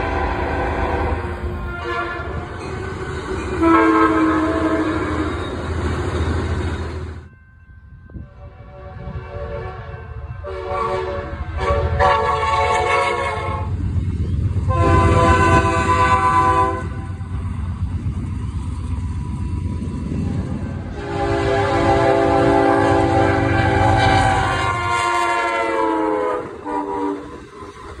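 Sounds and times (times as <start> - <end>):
locomotive air horn blasts: 0.0 - 5.5, 8.2 - 13.7, 14.6 - 17.2, 20.8 - 27.5
moving train rumble: 0.0 - 28.0.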